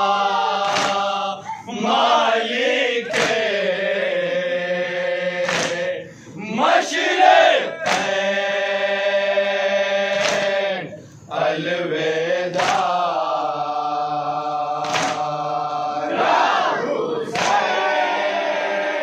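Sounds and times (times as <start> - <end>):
men chanting a lament: 0.0 - 19.0
chest-beating slaps: 0.6 - 1.2, 3.1 - 3.5, 5.4 - 5.9, 7.8 - 8.2, 10.1 - 10.6, 12.5 - 13.1, 14.8 - 15.4, 17.3 - 17.7.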